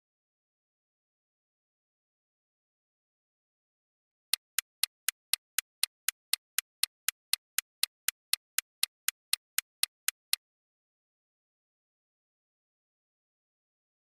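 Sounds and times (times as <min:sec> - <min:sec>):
clock-like timer ticks: 0:04.3 - 0:10.4.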